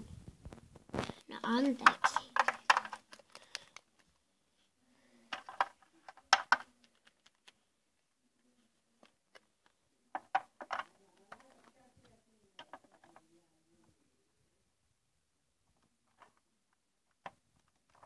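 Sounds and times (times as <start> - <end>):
toy pieces knocking and clicking: 1.4 - 4.1, 5.3 - 7.6, 9.0 - 11.8, 12.6 - 13.2.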